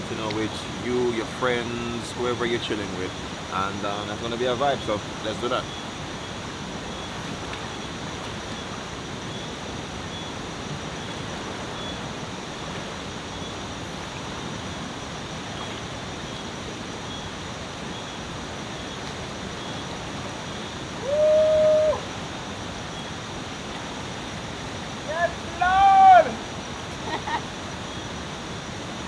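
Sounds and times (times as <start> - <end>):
river flowing over rocks: 0.0 - 29.0
person crying out: 21.0 - 22.0.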